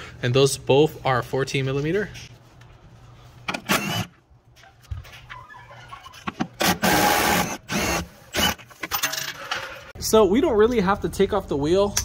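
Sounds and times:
cordless power tool running: 0:06.6 - 0:08.6.

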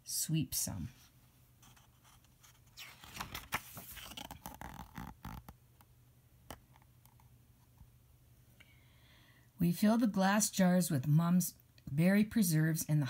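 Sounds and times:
book pages rustling: 0:01.6 - 0:05.9.

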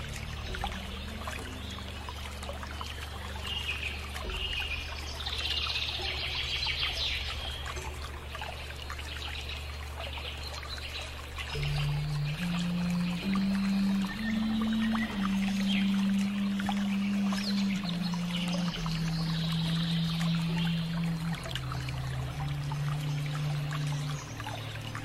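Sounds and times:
faint low held tones: 0:00.0 - 0:09.0, 0:11.4 - 0:25.0
birds chirping: 0:00.0 - 0:25.0
low hum and hiss: 0:00.0 - 0:25.0.

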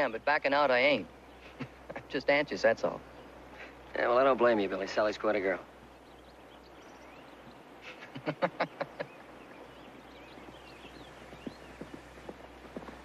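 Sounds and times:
horse sounds: 0:09.6 - 0:13.0.

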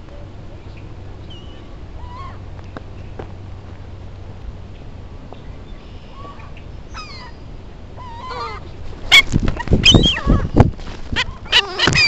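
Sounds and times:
gulls calling: 0:00.7 - 0:02.5, 0:05.6 - 0:12.0
wings flapping: 0:08.8 - 0:12.0.

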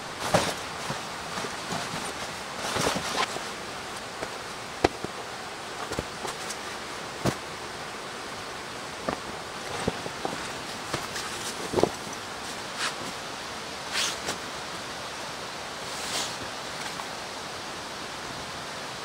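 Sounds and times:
fabric rustling: 0:00.0 - 0:07.8, 0:08.8 - 0:13.2
steady hiss: 0:00.0 - 0:19.0.

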